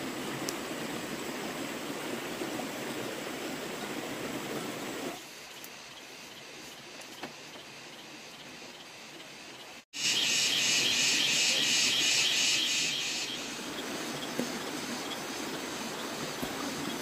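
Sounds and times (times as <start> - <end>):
outdoor background hiss: 0.0 - 17.0
insect high-pitched pulsing call: 5.4 - 17.0.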